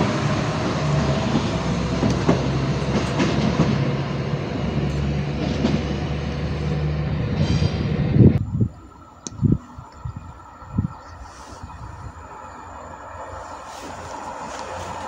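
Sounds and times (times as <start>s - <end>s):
diesel railcar engine hum: 0.0s - 15.0s
wheels clicking over rail joints: 0.5s - 6.3s.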